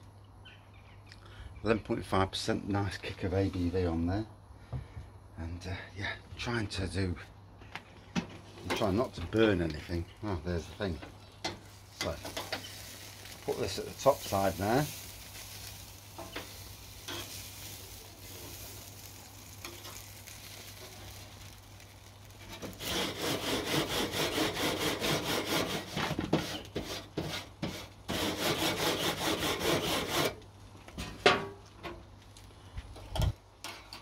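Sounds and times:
scraping at grill: 7.8s - 34.0s
food sizzling on grill: 8.6s - 28.8s.

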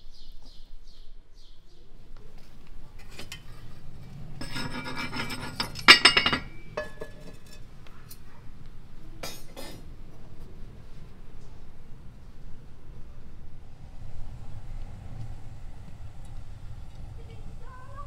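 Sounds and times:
frying pan scraping metal stovetop: 3.0s - 7.7s
pan clanking: 4.4s - 7.7s.

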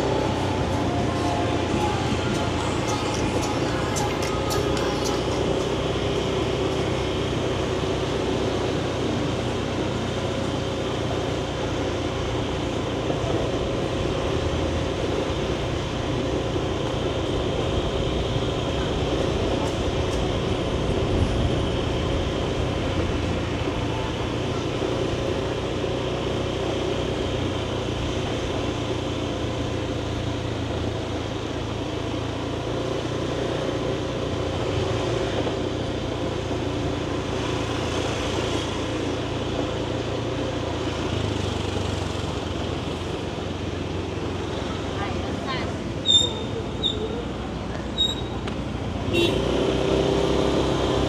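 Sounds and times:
motor scooter engine cruising: 0.0s - 51.0s
street traffic noise: 0.0s - 51.0s.

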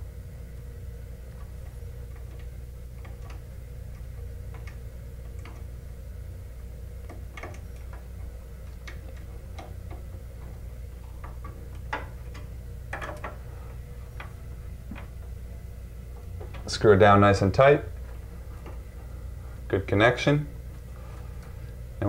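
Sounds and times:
steady low hum: 0.0s - 22.0s
clicks of wires being handled: 1.2s - 5.8s, 6.9s - 17.1s, 17.9s - 19.6s.

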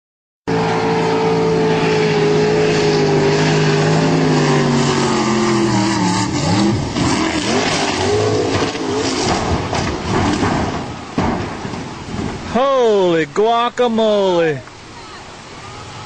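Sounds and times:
speedboat engine high-revving: 0.5s - 10.5s
wind: 0.5s - 16.0s.

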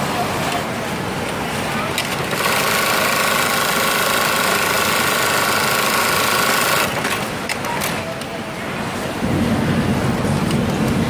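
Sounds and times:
sewing machine whirring: 1.9s - 8.1s.

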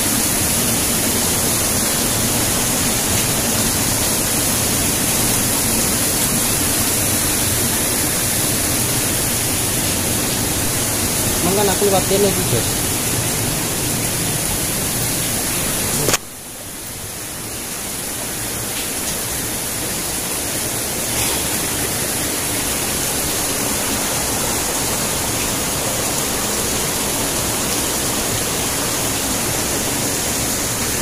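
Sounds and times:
stream and waterfall rushing: 0.0s - 31.0s.

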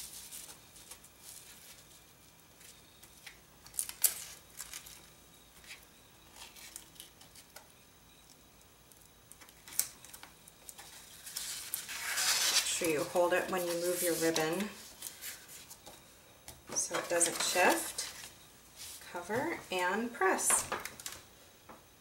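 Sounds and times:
ribbon rustling and scraping on mat: 10.7s - 16.0s.

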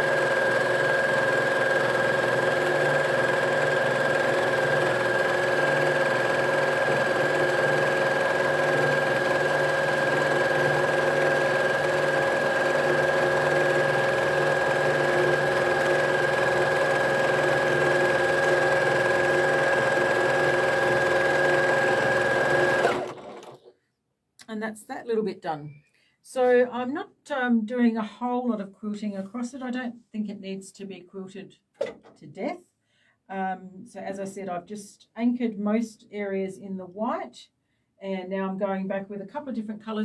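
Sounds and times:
sewing machine running: 0.0s - 23.7s.

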